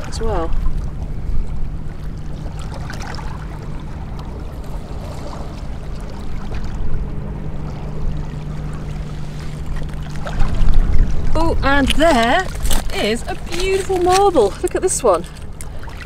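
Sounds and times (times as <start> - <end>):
low rumbling background: 0.0 - 16.0
steady low hum: 0.0 - 16.0.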